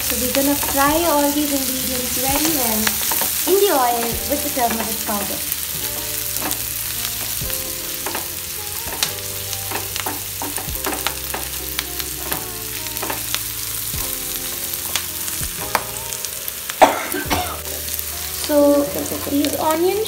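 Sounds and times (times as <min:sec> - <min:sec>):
wooden spatula scraping a pan: 0:00.0 - 0:15.9
vegetables sizzling in hot oil: 0:00.0 - 0:20.0.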